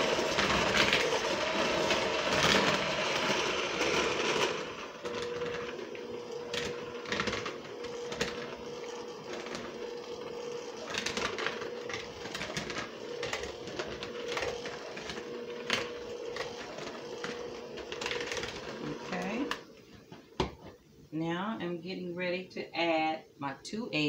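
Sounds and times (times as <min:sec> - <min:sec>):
beaters scraping plastic bowl: 0:00.0 - 0:19.7
electric mixer motor hum: 0:00.0 - 0:19.7.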